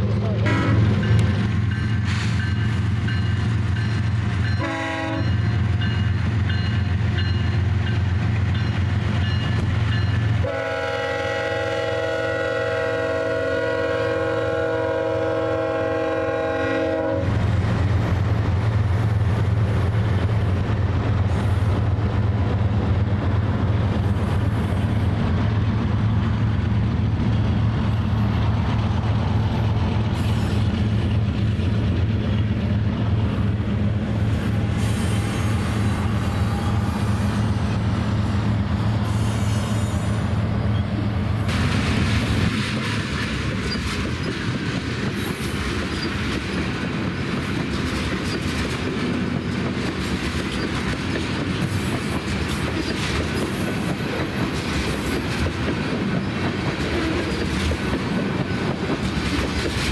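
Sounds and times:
locomotive engine drone: 0:00.0 - 0:45.0
train wheels on rails: 0:00.0 - 0:59.9
train horn blast: 0:00.4 - 0:01.0, 0:04.6 - 0:05.4, 0:10.4 - 0:17.4.

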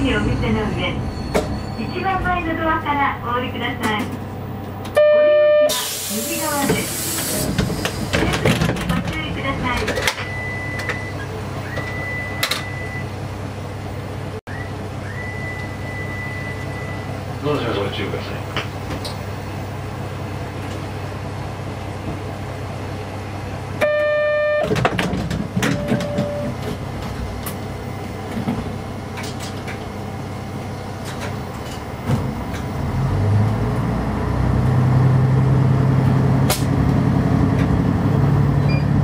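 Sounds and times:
diesel railcar engine droning: 0:00.0 - 0:39.0
train horn blast: 0:23.8 - 0:24.7.

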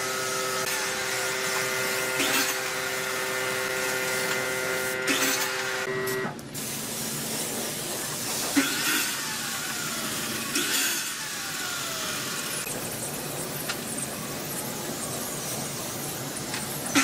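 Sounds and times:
spray gun hissing: 0:06.6 - 0:08.7.

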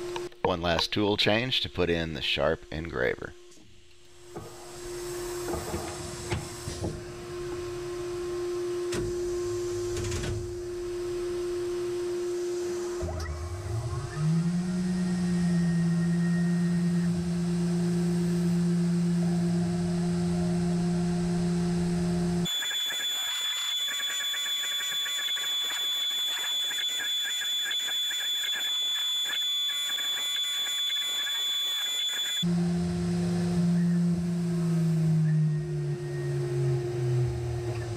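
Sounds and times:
machine hum: 0:00.0 - 0:37.9
high-pitched spindle whine: 0:07.2 - 0:37.9
faint wavering cutting sound: 0:11.3 - 0:37.9.

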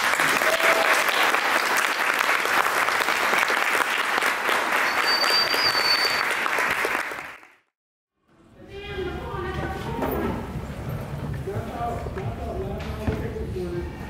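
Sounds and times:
audience applauding: 0:00.0 - 0:07.7
high whistle: 0:04.7 - 0:06.6.

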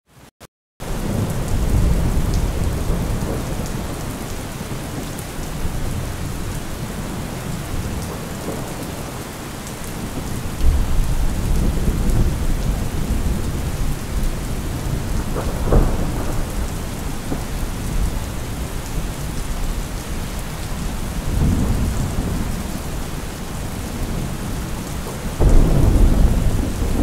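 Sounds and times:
rain falling: 0:00.8 - 0:27.0
thunder rumbling: 0:10.0 - 0:27.0.

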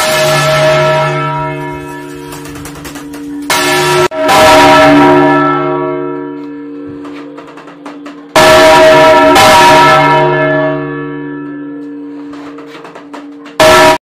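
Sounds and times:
church bell ringing: 0:00.0 - 0:14.0.

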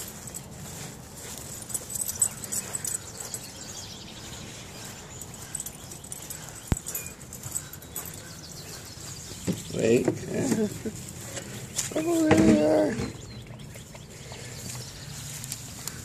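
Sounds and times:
dog moving: 0:00.0 - 0:03.7, 0:05.2 - 0:12.8
footsteps through grass: 0:00.0 - 0:12.3, 0:14.7 - 0:16.0.

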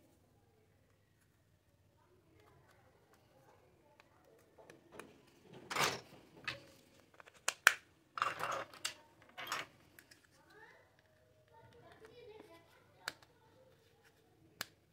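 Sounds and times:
plastic toy pieces clattering: 0:04.9 - 0:10.2.

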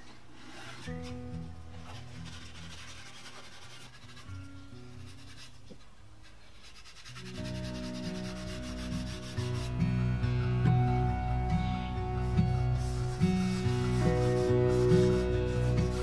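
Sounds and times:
background music with low notes: 0:00.0 - 0:16.0
scouring pad rubbing wood: 0:01.9 - 0:05.6, 0:06.2 - 0:09.8, 0:12.2 - 0:16.0.

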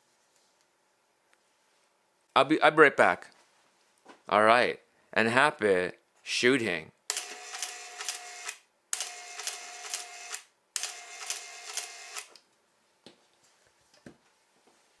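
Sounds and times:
small mechanism whirring and clicking: 0:07.1 - 0:12.4.

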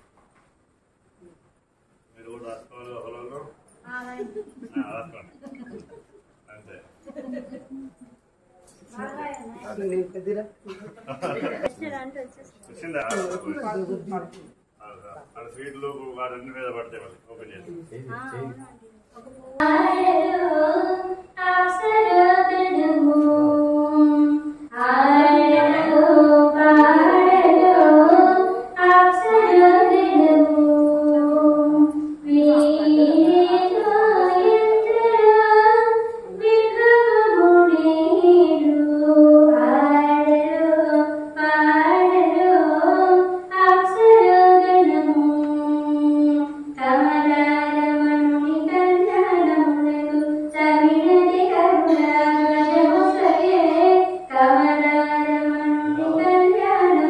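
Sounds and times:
person singing devotional song: 0:19.3 - 0:57.0.

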